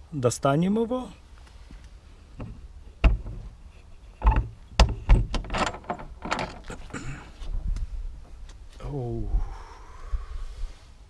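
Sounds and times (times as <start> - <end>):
cabinet door knocks and clicks: 2.4 - 3.4, 4.2 - 6.6
door latch being worked: 4.2 - 7.0.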